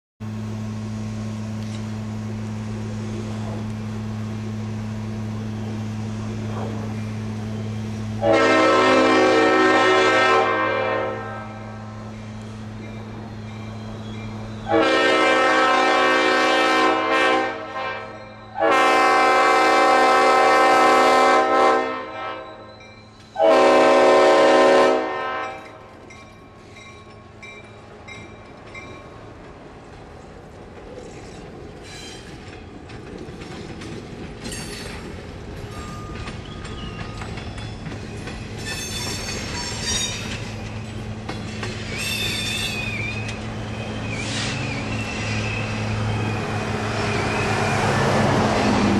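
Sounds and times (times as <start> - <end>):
locomotive engine running: 0.2 - 48.9
locomotive air horn blasts: 8.2 - 11.9, 14.6 - 22.7, 23.4 - 25.8
wheels clacking over rail joints: 25.3 - 48.9.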